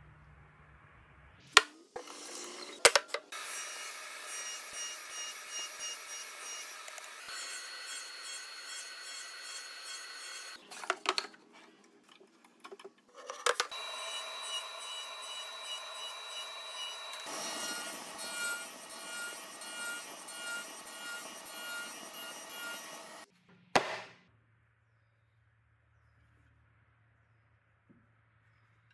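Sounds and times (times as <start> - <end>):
saw cutting wood: 1.6 - 11.0, 13.5 - 23.3.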